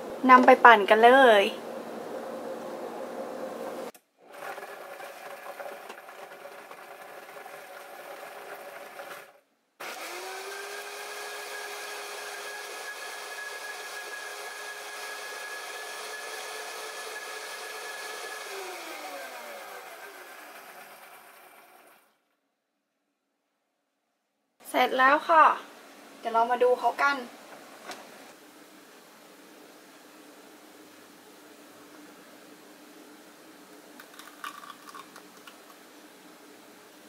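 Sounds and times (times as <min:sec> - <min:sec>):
blender running: 0:04.2 - 0:22.1.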